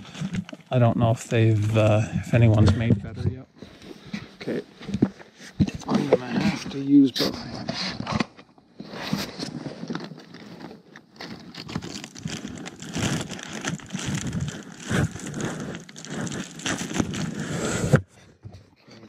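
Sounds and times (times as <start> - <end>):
tent fabric rustling and crackling: 8.8 - 17.9.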